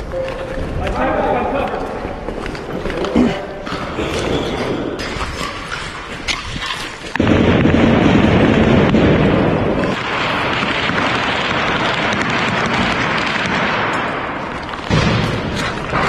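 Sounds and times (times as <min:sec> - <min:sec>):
gunfire cracks: 0:07.1 - 0:16.0
loud sustained explosion rumble: 0:07.2 - 0:14.3.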